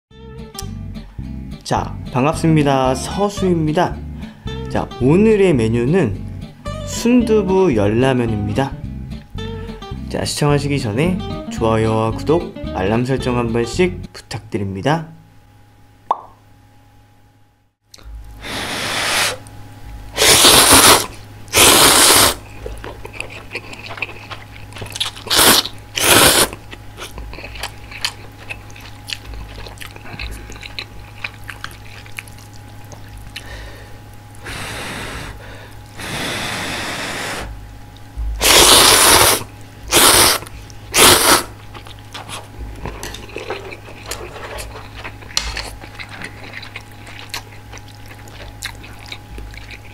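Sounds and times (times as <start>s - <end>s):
steady low hum: 0.2s - 49.9s
slurping noodles: 18.4s - 19.4s, 20.2s - 22.4s, 23.2s - 26.6s, 36.0s - 37.5s, 38.4s - 49.9s
blowing on food: 18.4s - 19.5s, 20.1s - 22.4s, 25.2s - 26.6s, 34.4s - 37.6s, 38.4s - 41.6s.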